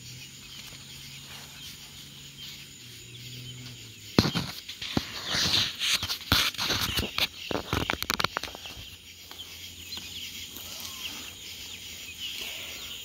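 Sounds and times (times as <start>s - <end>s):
chicks peeping: 0.0s - 13.0s
clicks and rustles: 4.2s - 10.1s.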